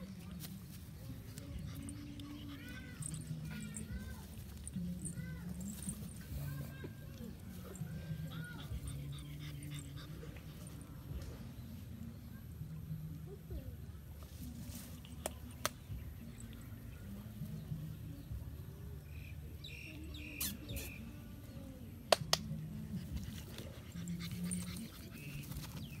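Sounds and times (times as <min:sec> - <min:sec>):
dog sounds: 0:00.0 - 0:11.6, 0:22.4 - 0:26.0.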